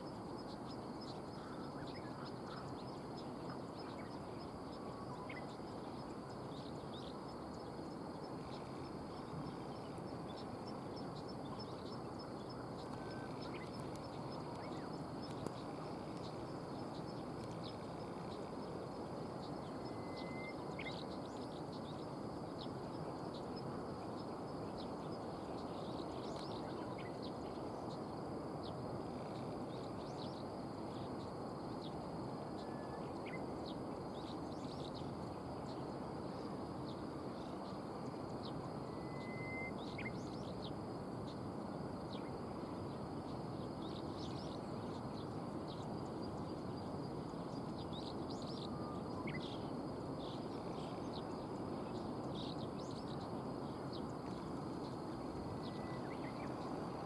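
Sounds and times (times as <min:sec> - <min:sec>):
outdoor background hiss: 0:00.0 - 0:57.0
small birds chirping: 0:00.3 - 0:32.0
thin whistles: 0:19.8 - 0:20.6, 0:38.9 - 0:39.8.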